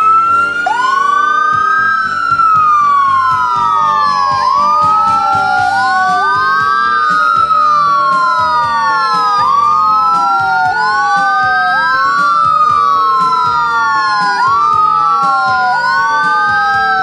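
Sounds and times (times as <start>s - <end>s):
sirens wailing: 0.0s - 17.0s.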